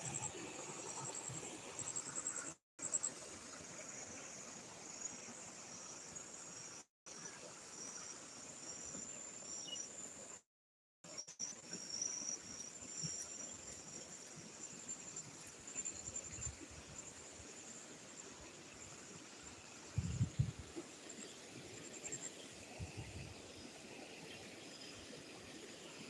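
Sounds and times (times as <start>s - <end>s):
insects trilling: 11.1s - 23.7s.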